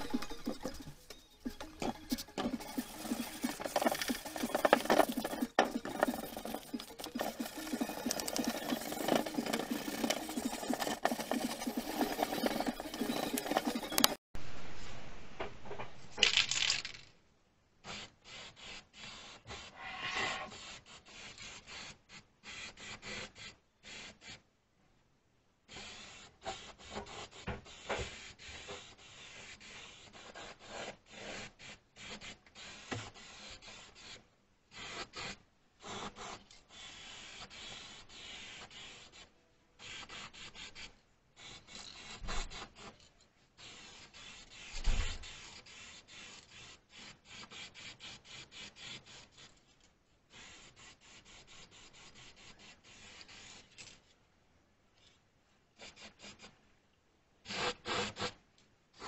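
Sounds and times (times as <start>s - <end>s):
spray paint can hissing: 0.0s - 14.2s.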